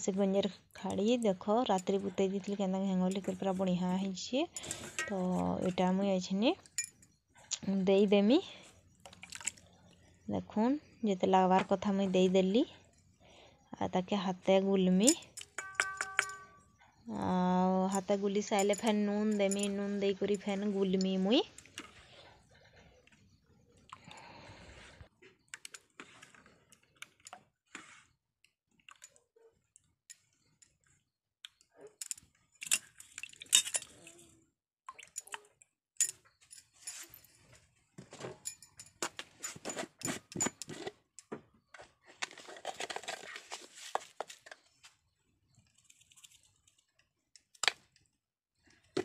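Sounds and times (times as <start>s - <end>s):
sharp clinks and jingles: 15.0s - 16.6s, 17.9s - 19.8s, 36.0s - 37.5s, 38.4s - 40.7s.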